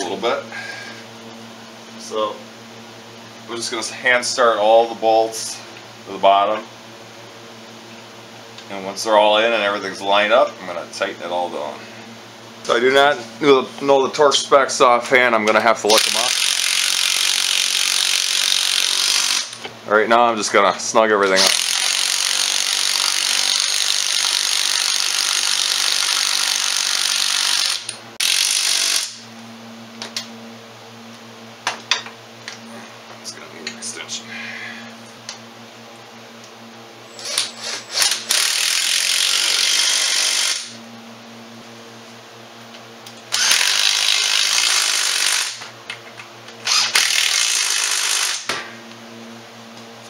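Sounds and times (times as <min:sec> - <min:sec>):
impact driver running bolt: 0:21.4 - 0:29.2, 0:43.3 - 0:45.6, 0:46.6 - 0:48.5.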